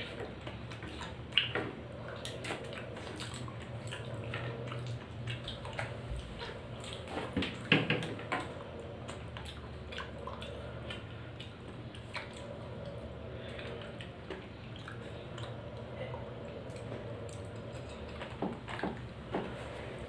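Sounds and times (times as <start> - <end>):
soft chewing: 0.0 - 20.0
steady low hum: 0.0 - 20.0.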